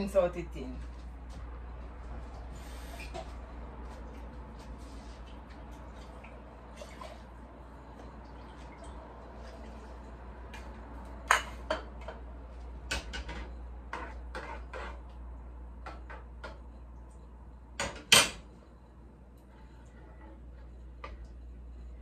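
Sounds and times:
spoon scraping a saucepan: 13.3s - 15.2s, 18.3s - 22.0s.

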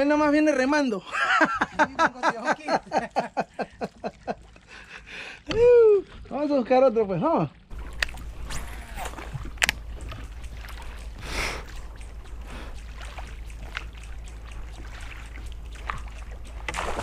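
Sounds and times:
oars sloshing water: 0.0s - 17.0s
water splash: 7.7s - 17.0s.

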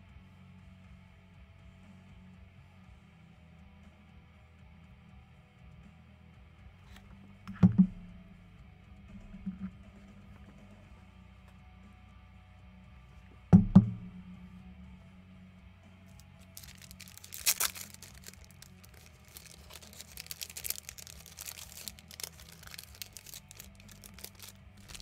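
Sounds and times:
faint background music: 0.0s - 25.0s
sharp knocks: 13.6s - 14.2s
small clicks and rustles: 16.1s - 25.0s
packaging crinkling and tearing: 16.4s - 25.0s.

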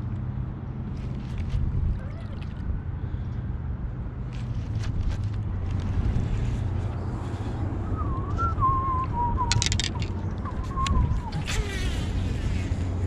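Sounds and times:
wind rumble on microphone: 0.9s - 13.0s
wavering whistled tone: 7.2s - 12.6s.

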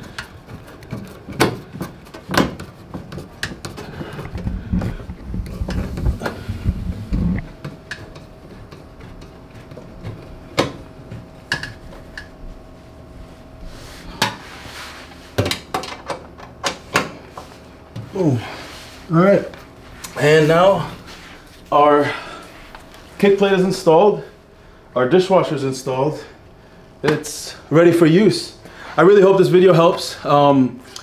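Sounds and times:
low rubbing and bumping: 4.3s - 7.5s.

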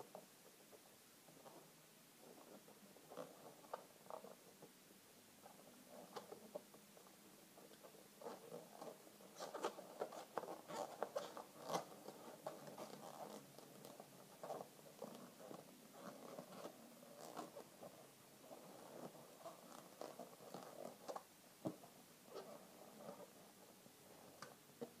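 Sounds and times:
balloons squeaking and crackling: 8.2s - 17.8s.

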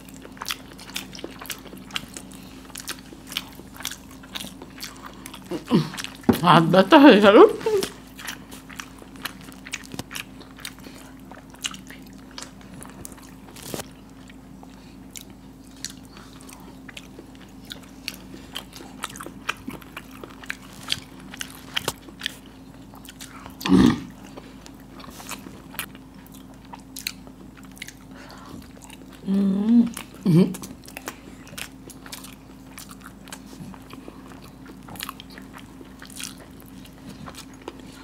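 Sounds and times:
wet eating smacks: 15.2s - 23.7s.

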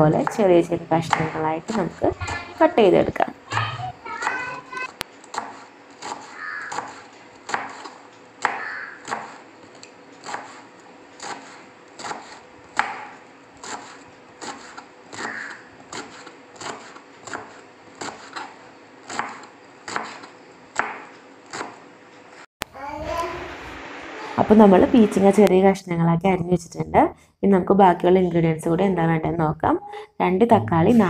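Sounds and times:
knife chopping on cutting board: 1.1s - 2.6s, 5.2s - 21.8s.

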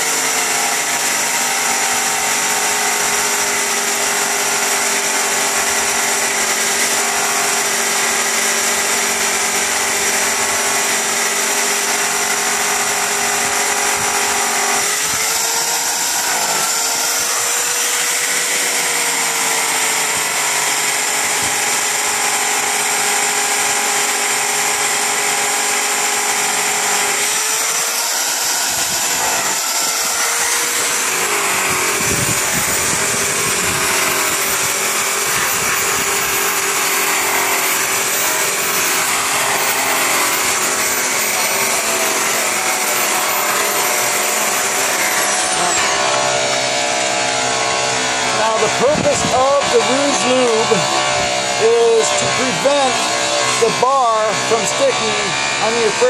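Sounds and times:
car polisher motor whine: 0.0s - 56.0s.

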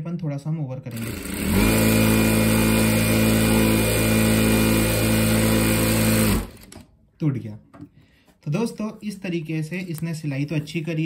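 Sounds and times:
sewing machine stitching: 0.9s - 6.8s.

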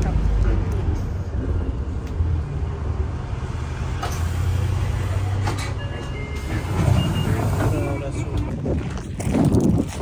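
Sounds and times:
low rumble of road vehicle: 0.0s - 9.2s
short high beeps: 5.7s - 7.6s.

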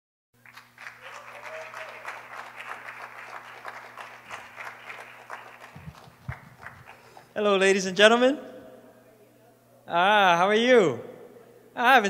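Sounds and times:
audience applauding: 0.4s - 7.3s
low steady hum: 0.4s - 12.0s.

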